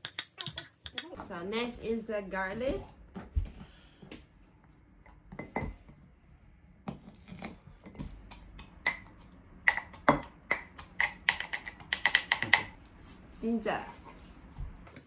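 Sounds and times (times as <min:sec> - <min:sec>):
metal pestle pounding in mortar: 0:07.9 - 0:12.8.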